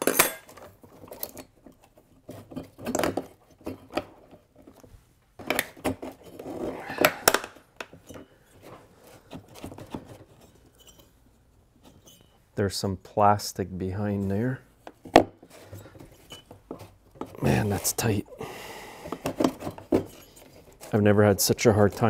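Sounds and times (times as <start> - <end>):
metal cylinder scraping and clinking: 10.2 - 11.2, 11.8 - 12.4, 15.5 - 16.6, 19.6 - 22.0.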